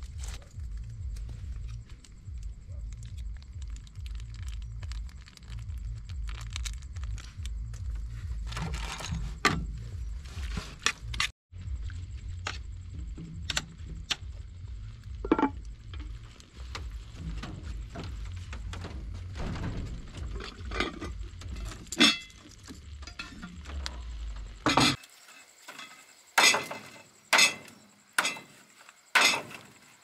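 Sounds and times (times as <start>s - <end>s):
steady low rumble: 0.0s - 25.0s.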